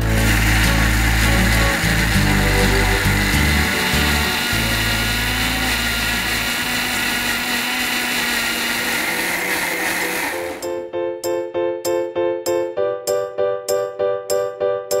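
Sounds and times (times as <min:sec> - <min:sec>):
music with repeated notes: 0:00.0 - 0:04.9, 0:10.4 - 0:15.0
mixer grinder running: 0:00.0 - 0:10.7.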